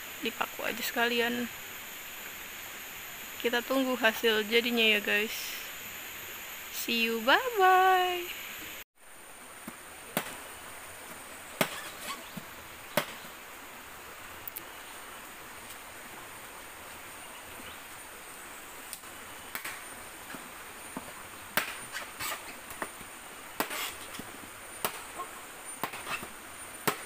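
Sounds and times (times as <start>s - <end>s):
machete chopping bamboo: 10.1s - 10.4s, 11.6s - 13.2s, 21.5s - 23.0s, 23.6s - 24.2s, 24.8s - 25.2s, 25.8s - 27.0s.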